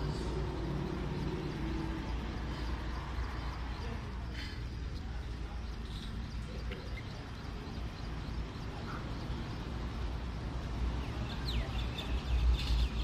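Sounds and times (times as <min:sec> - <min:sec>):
birds chirping and calling: 0:00.0 - 0:13.0
steady low rumble: 0:00.0 - 0:13.0.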